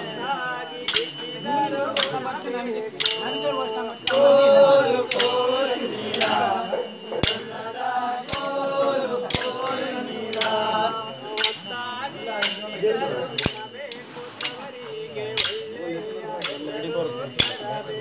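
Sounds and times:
men singing a chant-like song: 0.0 - 18.0
dance sticks clacking: 0.9 - 1.4, 2.0 - 4.4, 5.1 - 12.8, 13.4 - 13.8, 15.4 - 15.8.

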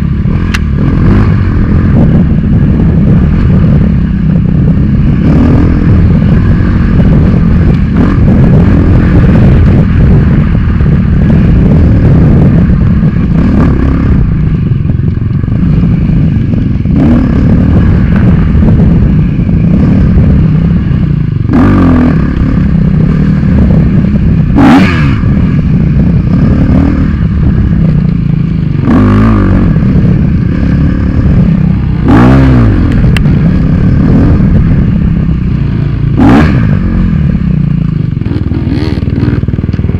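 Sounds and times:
dirt bike engine revving: 0.0 - 39.9.

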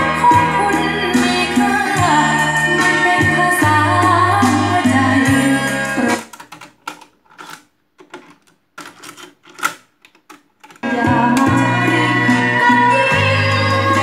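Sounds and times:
music with woman singing: 0.0 - 6.4, 10.8 - 14.0.

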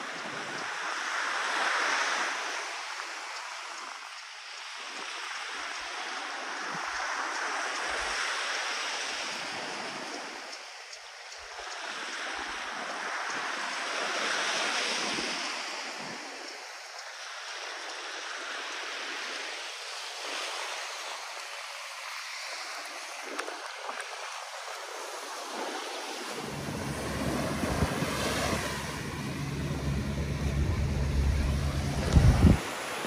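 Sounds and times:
surf washing onto beach: 0.0 - 33.0
wind rumbling on microphone: 22.5 - 33.0.

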